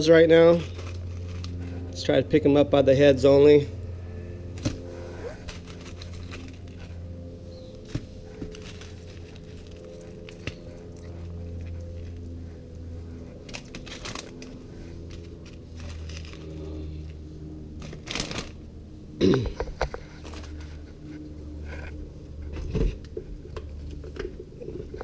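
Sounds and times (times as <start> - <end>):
steady low hum: 0.0 - 25.0
plastic bag crinkling: 17.8 - 18.6.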